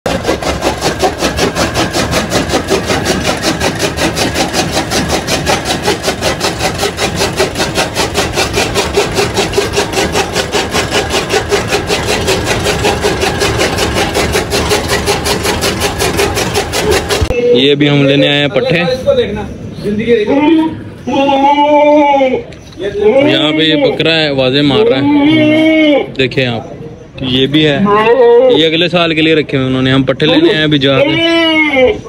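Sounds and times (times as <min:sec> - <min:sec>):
chaff cutter chopping fodder: 0:00.0 - 0:17.4.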